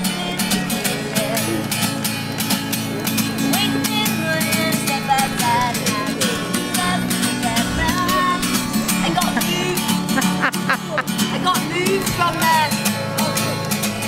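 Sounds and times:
acoustic guitar strumming: 0.0 - 14.0
woman singing: 3.4 - 10.0, 11.3 - 13.7.

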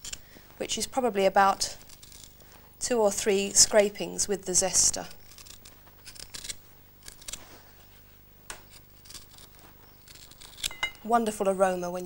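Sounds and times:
zester scraping lime peel: 0.0 - 2.4, 3.1 - 7.5, 8.6 - 10.8.

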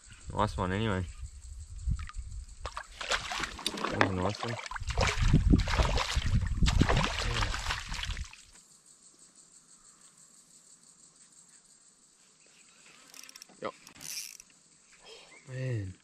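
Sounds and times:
insects chirping: 0.0 - 16.0
fish splashing in landing net: 2.7 - 8.5.

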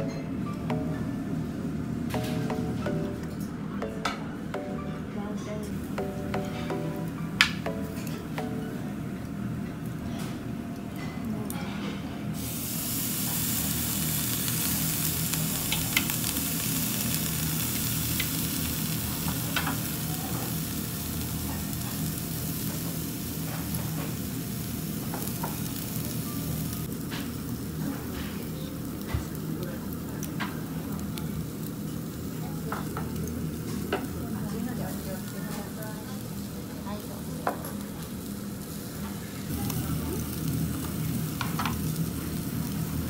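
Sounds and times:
meat sizzling on a grill: 12.4 - 43.0.

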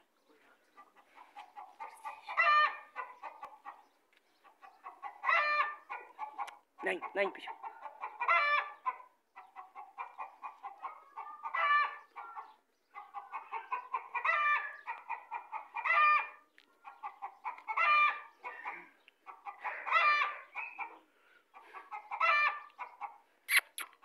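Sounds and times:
chicken clucking: 0.5 - 24.0
loud pitched chicken calls: 1.9 - 3.8, 5.0 - 6.5, 7.7 - 18.5, 19.3 - 20.9, 21.8 - 23.9.

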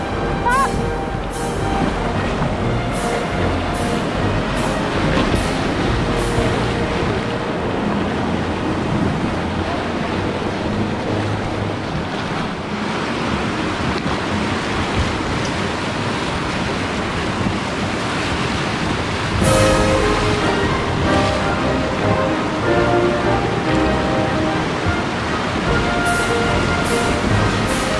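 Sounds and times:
whitewater rapids rushing: 0.0 - 27.9.

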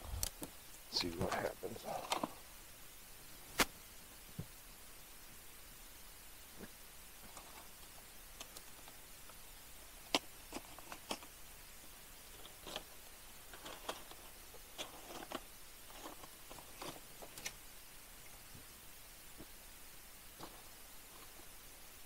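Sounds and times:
fire pops and snaps: 0.1 - 0.8, 3.5 - 4.6.

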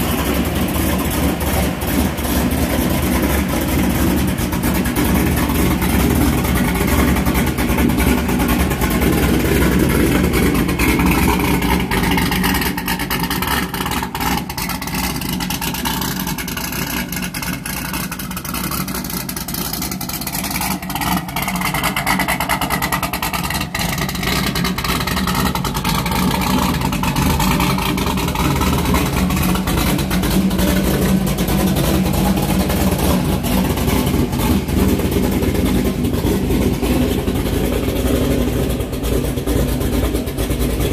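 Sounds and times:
car engine idling: 0.0 - 40.9.

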